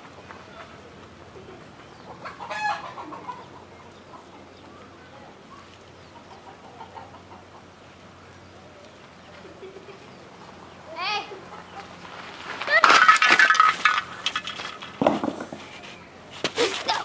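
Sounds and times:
chicken clucking: 1.4s - 4.8s, 6.0s - 7.8s
chicken squawk: 2.2s - 3.5s.

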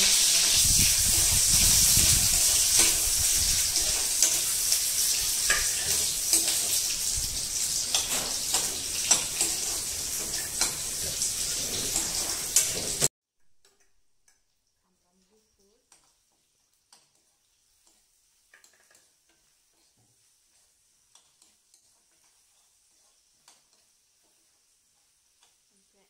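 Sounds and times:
metal spatula scraping pan: 0.0s - 13.1s, 16.9s - 24.6s
food sizzling in a pan: 0.0s - 26.0s.

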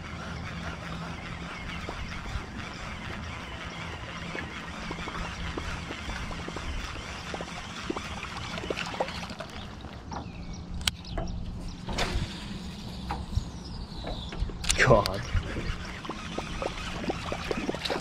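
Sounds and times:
water lapping against boat hull: 0.0s - 10.8s, 14.0s - 18.0s
steady low hum: 0.0s - 18.0s.

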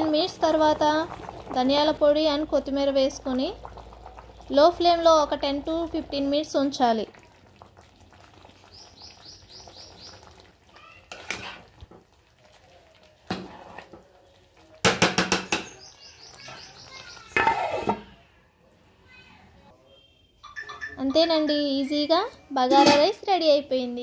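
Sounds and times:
small bird chirping: 8.7s - 10.3s, 15.4s - 17.4s
spatula scraping rice in pot: 11.1s - 11.7s, 13.4s - 14.0s.

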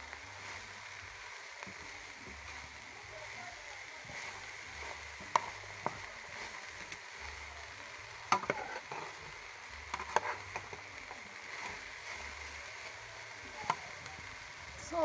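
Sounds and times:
okra sizzling in hot oil: 0.0s - 15.0s
utensil scraping a pot: 8.3s - 9.3s, 9.9s - 10.8s.

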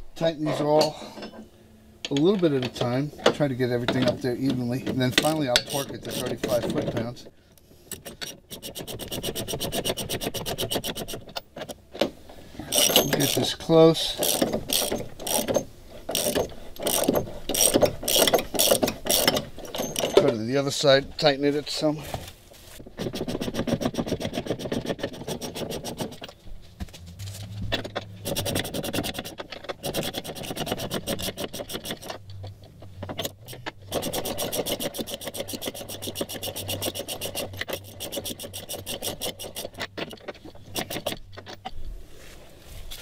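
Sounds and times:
ratchet wrench clicking: 5.1s - 6.6s, 7.9s - 11.4s, 12.7s - 20.2s, 28.2s - 41.8s.

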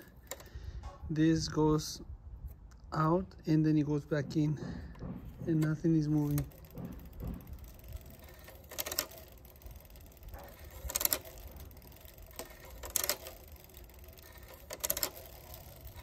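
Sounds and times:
bicycle chain rapid clicking: 0.0s - 0.7s, 4.6s - 16.0s.

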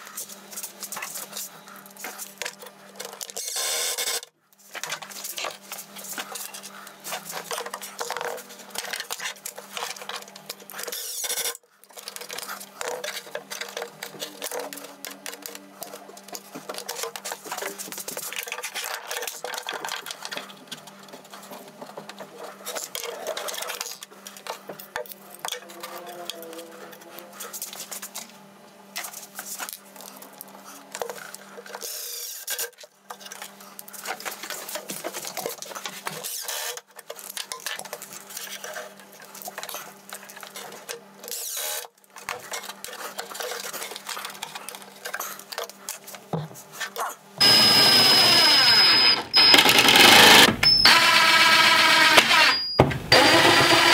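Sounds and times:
cordless drill running: 47.4s - 53.9s.

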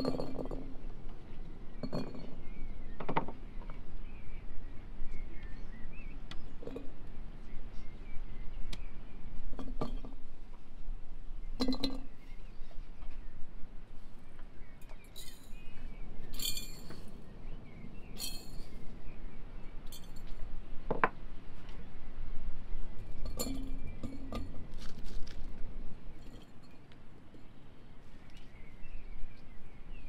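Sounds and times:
food clinking into glass jars: 16.4s - 17.0s, 18.2s - 18.7s.

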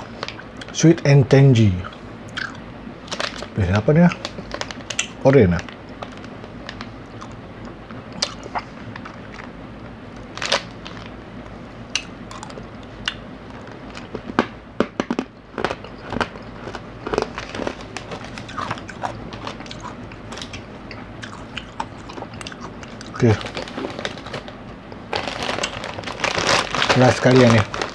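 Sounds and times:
plastic wrapper crinkling: 3.0s - 6.9s, 10.2s - 11.2s, 15.5s - 20.5s, 22.9s - 27.9s
chewing: 12.0s - 14.3s, 15.5s - 24.0s.

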